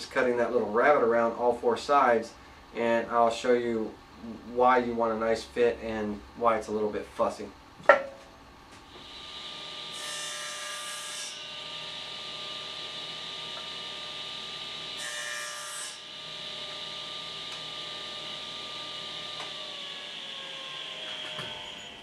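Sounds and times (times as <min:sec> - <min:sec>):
table saw motor whine: 0:08.9 - 0:22.0
saw blade cutting plywood: 0:13.6 - 0:22.0.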